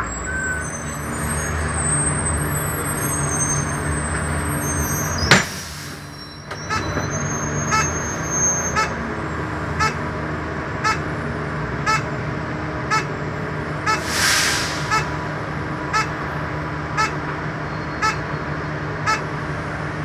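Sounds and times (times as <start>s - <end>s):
bus engine idling: 0.0s - 20.0s
air hiss: 5.4s - 6.1s, 14.0s - 15.2s.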